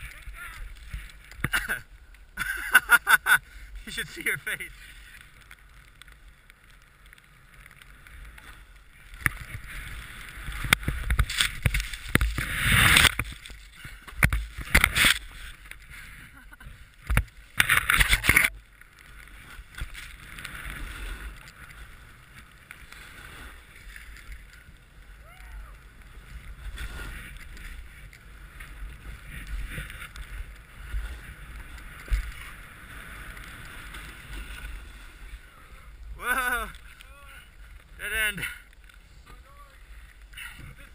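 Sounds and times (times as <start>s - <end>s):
wind rumbling on microphone: 0.0s - 40.9s
snowboard swishing through snow: 19.2s - 35.5s
snow hissing against snowboard: 25.2s - 27.4s.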